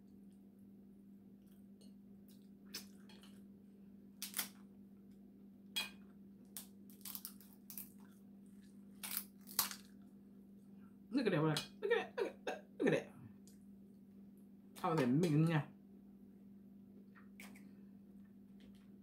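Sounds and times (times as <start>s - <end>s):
crab shell cracking: 4.2s - 4.6s, 6.5s - 8.0s, 9.0s - 10.0s.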